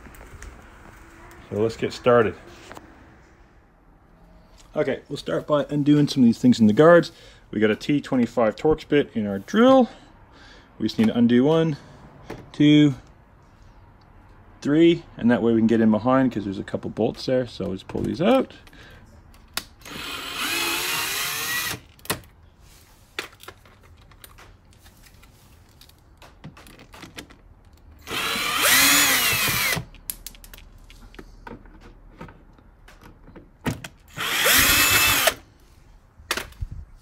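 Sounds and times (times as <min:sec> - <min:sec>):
cordless drill motor whine: 0:19.9 - 0:21.8, 0:28.0 - 0:29.8, 0:34.1 - 0:35.4.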